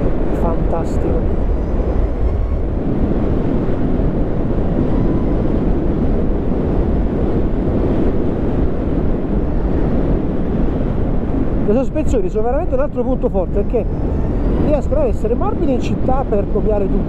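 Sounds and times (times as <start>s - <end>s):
motorcycle road noise: 0.0s - 17.0s
wind rushing over microphone: 0.0s - 17.0s.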